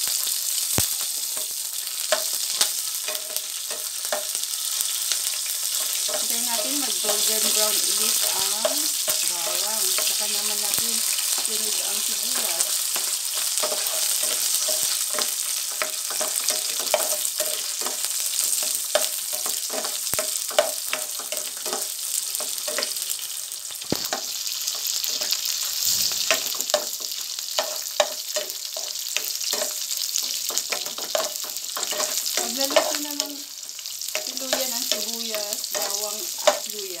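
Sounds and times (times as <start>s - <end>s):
onion sizzling in hot oil: 0.0s - 37.0s
plastic spoon scraping a pan: 30.5s - 33.0s.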